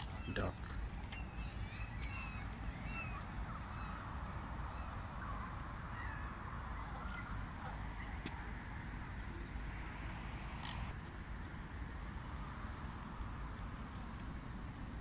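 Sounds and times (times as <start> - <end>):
faint bird calls: 0.0 - 8.6, 10.5 - 10.9.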